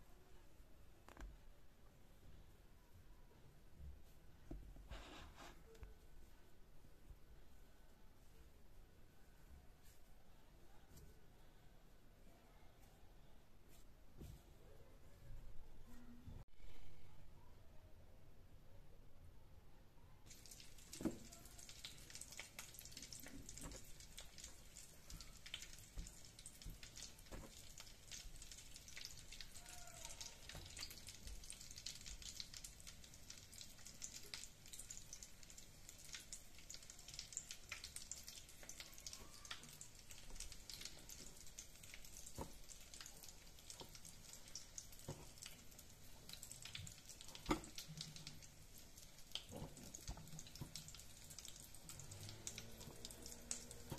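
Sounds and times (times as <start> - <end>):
breadcrumbs crackling: 20.3 - 53.9.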